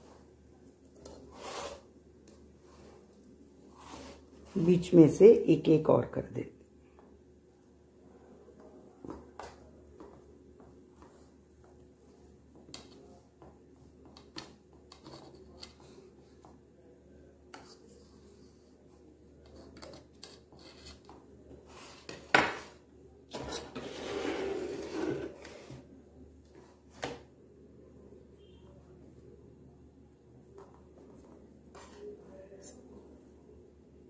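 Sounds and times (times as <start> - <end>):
plastic plate scraping on table: 23.3 - 25.8.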